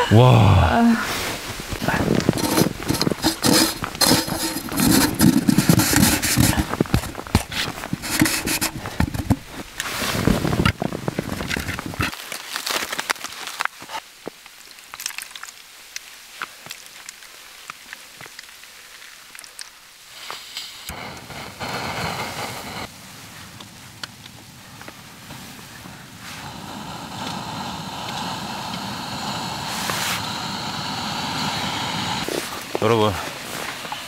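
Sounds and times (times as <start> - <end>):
snow crunching and scraping: 1.0 - 14.0, 20.1 - 34.0.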